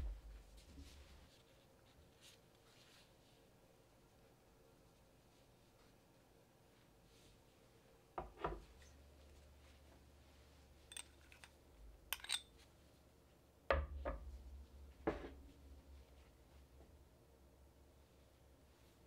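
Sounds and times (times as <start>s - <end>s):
metal spoon clinking on bowls: 10.9s - 11.5s, 12.1s - 12.5s
spoon scraping garlic: 10.9s - 11.5s, 12.1s - 12.5s.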